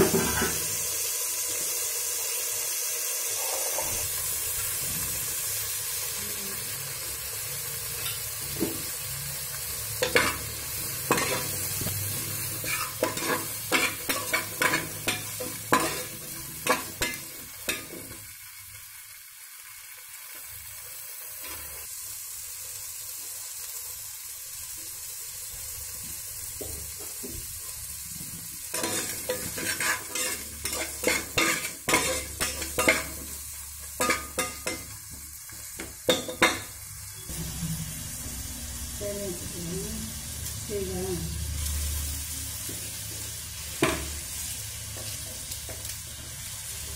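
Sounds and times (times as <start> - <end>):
vegetables sizzling in hot oil: 0.0 - 46.9
spatula scraping and knocking pot: 28.8 - 33.2.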